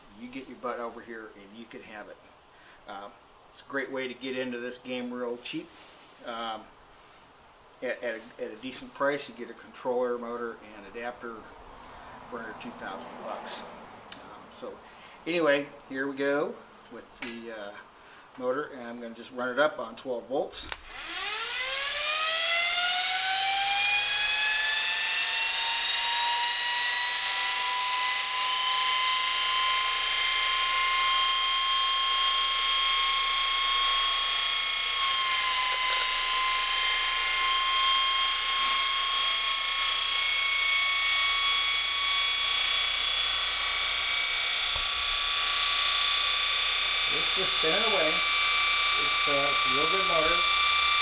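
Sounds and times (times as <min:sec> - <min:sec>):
electric motor whining: 0:20.7 - 0:51.0.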